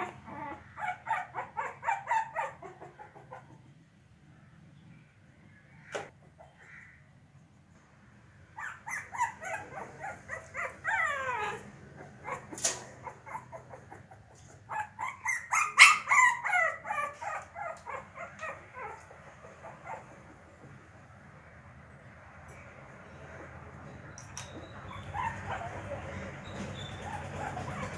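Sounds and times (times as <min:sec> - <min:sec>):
puppy yipping and whining: 0:00.0 - 0:03.6, 0:08.6 - 0:20.3, 0:24.3 - 0:27.9.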